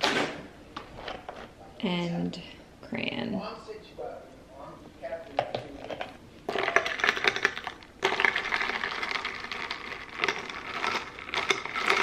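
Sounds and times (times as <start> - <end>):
ice cubes clinking in glass: 5.9 - 12.0.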